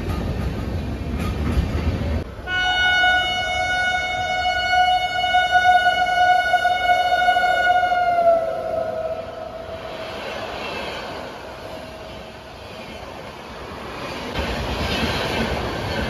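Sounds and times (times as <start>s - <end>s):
train rumbling: 0.0s - 16.0s
train horn blast: 2.4s - 9.8s.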